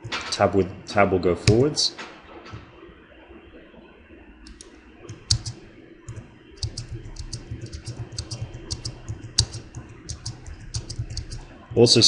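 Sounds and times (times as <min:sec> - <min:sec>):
keyboard keys clicking: 0:01.4 - 0:01.6, 0:04.5 - 0:11.4.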